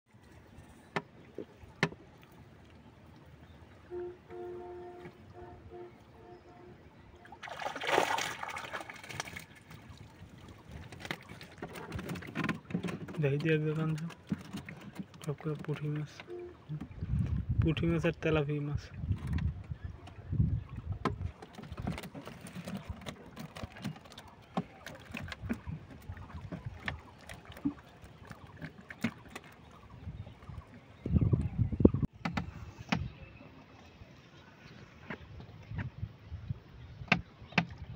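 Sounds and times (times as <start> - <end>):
water splashing and trickling: 0.1 - 37.9
clicks and rustles of fish trap: 10.8 - 15.8, 21.4 - 25.6.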